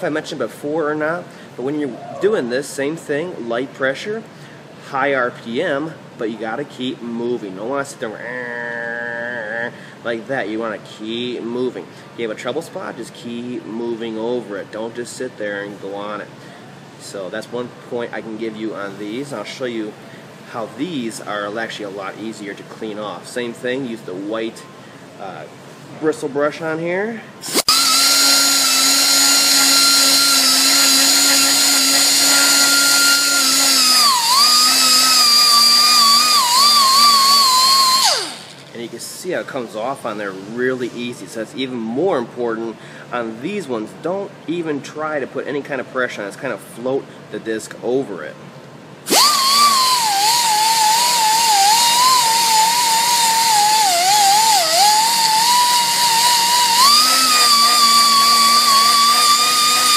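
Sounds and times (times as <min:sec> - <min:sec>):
grinder whining: 0:27.4 - 0:38.7, 0:49.1 - 0:59.9.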